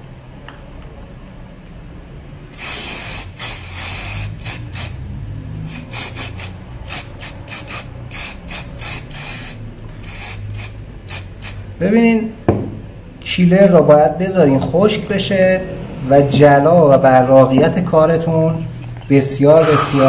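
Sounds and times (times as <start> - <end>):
aerosol can spraying: 2.6 - 5.0, 5.7 - 11.6, 19.6 - 20.0.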